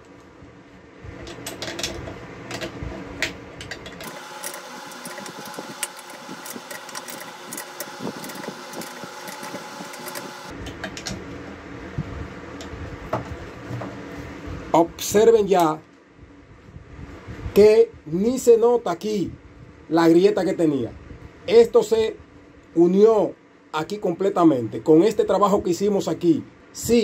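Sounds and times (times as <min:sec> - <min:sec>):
socket wrench clicking: 0:03.6 - 0:10.5.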